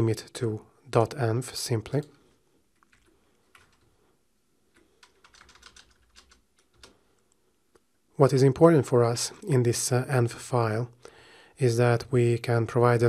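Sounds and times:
keyboard keystrokes: 4.7 - 7.0.

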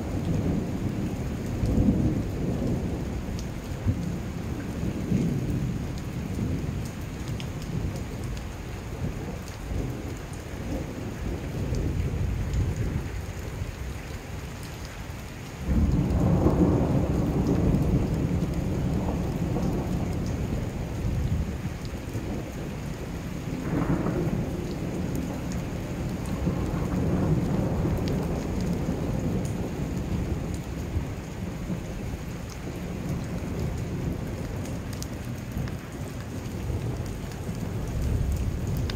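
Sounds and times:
steady rain: 0.0 - 38.9
thunder rumbling: 15.6 - 38.9.

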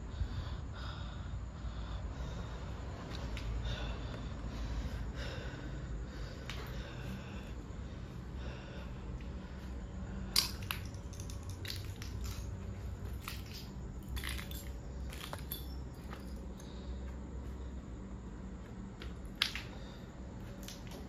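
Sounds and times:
low steady rumble: 0.0 - 21.0
footsteps crunching on rubble: 11.4 - 16.4.

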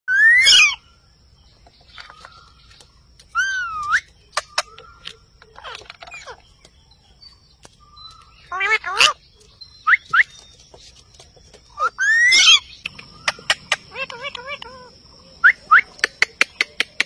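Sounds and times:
parakeet chattering calls: 3.4 - 6.5, 8.4 - 9.2, 11.7 - 17.0
sharp clicks: 15.8 - 17.0.

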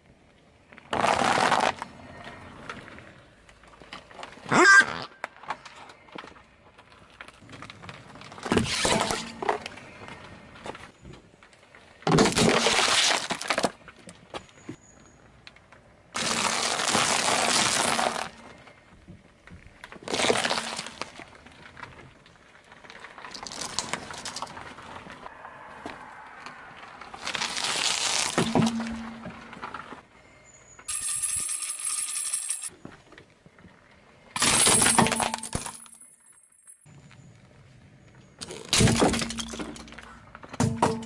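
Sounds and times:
tyre crushing objects: 12.0 - 13.9, 16.2 - 18.4, 19.9 - 22.0, 27.2 - 30.0.

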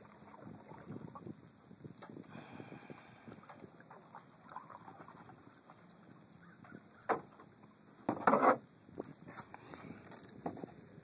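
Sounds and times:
canoe knocking against boat hull: 8.1 - 8.6.

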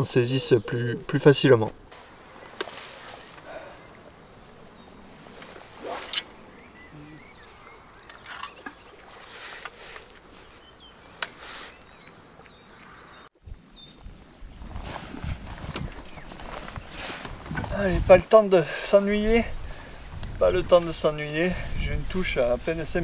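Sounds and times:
faint outdoor background: 0.0 - 23.0
bird chirps: 3.1 - 5.2, 5.8 - 14.4.

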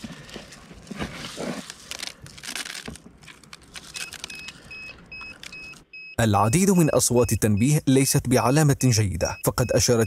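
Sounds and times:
dry rice rustling and crunching: 1.2 - 4.6.

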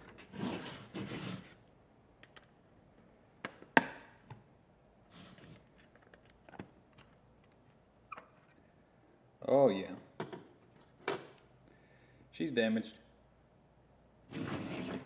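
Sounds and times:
metal sliding scrape: 0.2 - 1.6, 14.3 - 15.0.

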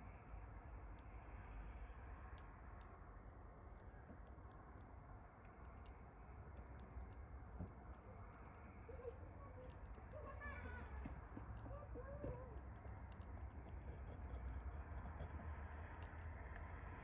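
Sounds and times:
bee chewing cocoon clicks: 12.5 - 16.7.

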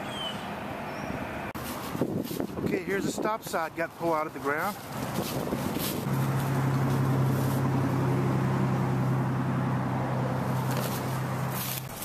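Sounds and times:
engine running steadily: 4.6 - 12.0.

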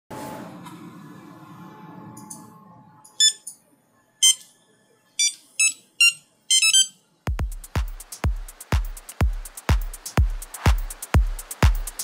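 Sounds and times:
short electronic beeps: 3.1 - 3.6, 4.2 - 4.5, 5.2 - 7.0
electronic music beat: 6.6 - 12.0.

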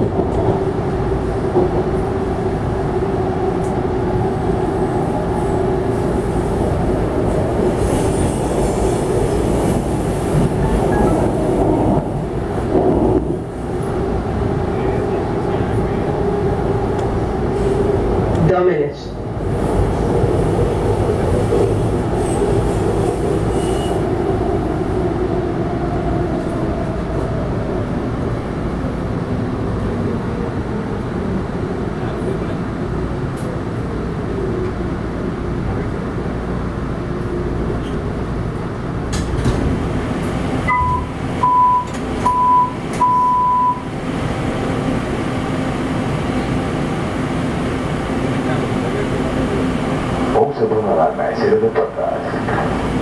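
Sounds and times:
wheels rumbling on rail: 0.0 - 53.0
door chime beeps: 40.7 - 43.8.

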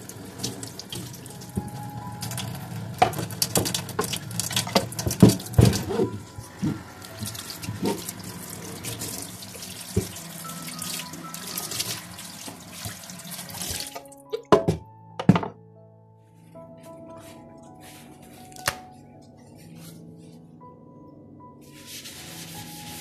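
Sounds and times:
tap water running onto board: 0.0 - 14.4
board knocking against sink: 14.4 - 15.6.

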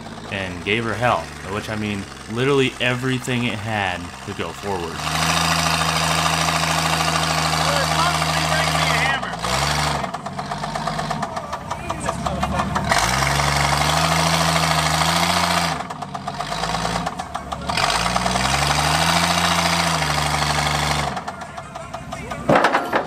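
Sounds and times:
car engine revving with rod knock: 0.0 - 23.0
tires spinning on wooden deck: 0.0 - 23.0.

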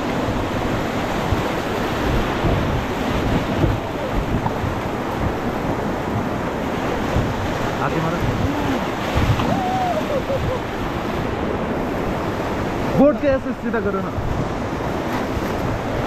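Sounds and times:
whitewater rapids rushing: 0.0 - 16.0
wind buffeting microphone: 0.0 - 16.0.

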